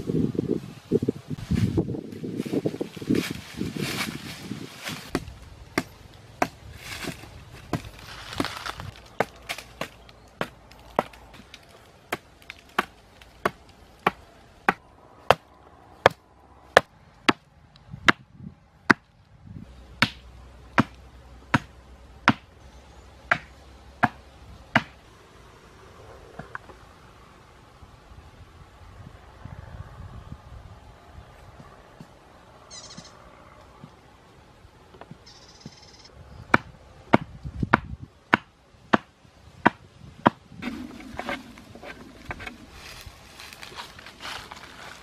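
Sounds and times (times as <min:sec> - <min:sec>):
leaves and brush rustling: 0:00.0 - 0:15.3, 0:38.7 - 0:45.0
blade chopping wooden pole: 0:05.1 - 0:08.6, 0:20.0 - 0:22.5, 0:23.3 - 0:25.0, 0:36.5 - 0:42.6.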